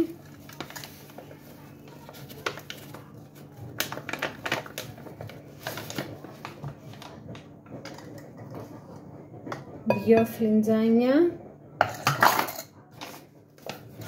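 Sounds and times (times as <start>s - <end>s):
paper bag rustling: 0.0s - 7.6s.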